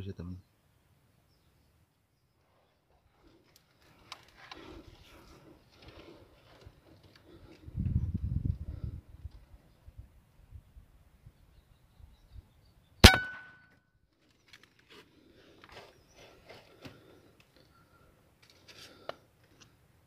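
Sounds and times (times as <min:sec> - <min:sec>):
air rifle shot: 0:13.0 - 0:13.5.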